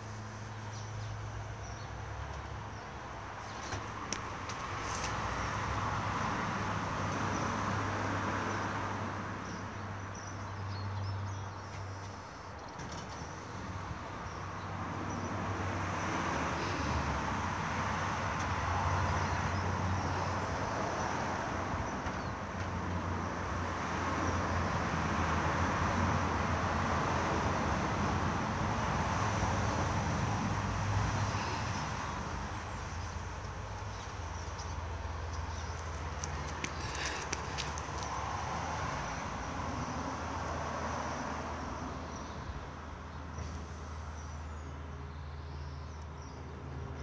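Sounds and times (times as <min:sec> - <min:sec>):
passing road traffic: 0:00.0 - 0:47.0.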